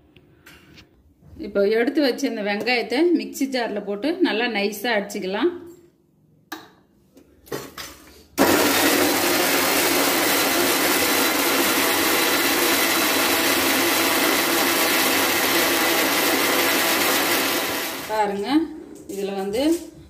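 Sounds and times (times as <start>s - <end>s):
mixer grinder running: 8.4s - 18.4s.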